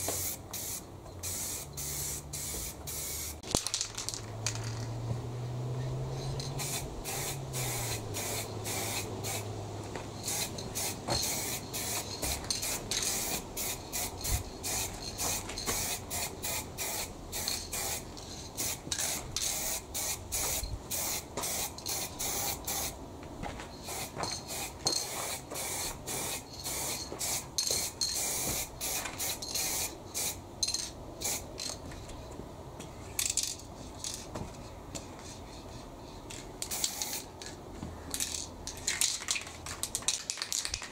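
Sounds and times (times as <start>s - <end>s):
spray paint hissing in bursts: 0.0s - 3.8s, 6.1s - 9.5s, 10.1s - 23.0s, 23.8s - 31.8s, 35.0s - 37.4s.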